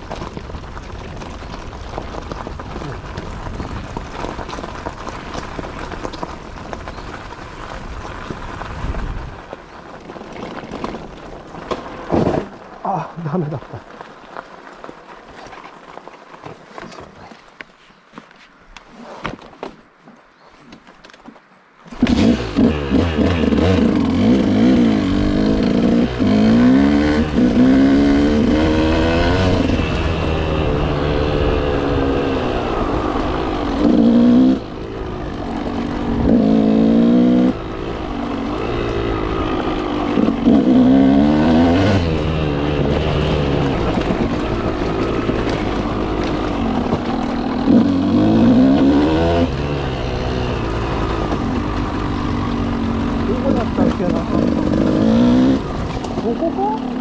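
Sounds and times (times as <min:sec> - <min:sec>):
motorcycle engine revving: 0:21.9 - 0:57.0.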